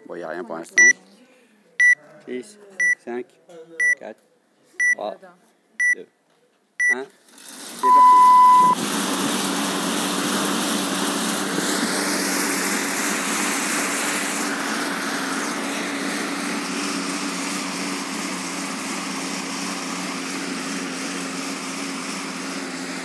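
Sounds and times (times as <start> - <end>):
exercise bike fan whirring: 7.3 - 23.0.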